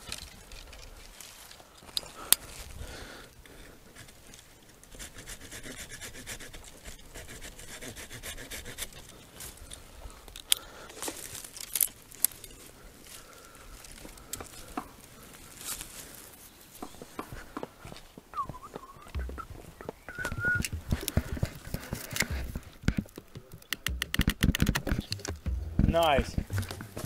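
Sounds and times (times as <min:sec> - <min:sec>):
twigs crackling and snapping: 0:00.0 - 0:04.9, 0:08.8 - 0:17.5, 0:18.4 - 0:27.0
knocks and thuds: 0:19.2 - 0:21.5, 0:22.3 - 0:27.0.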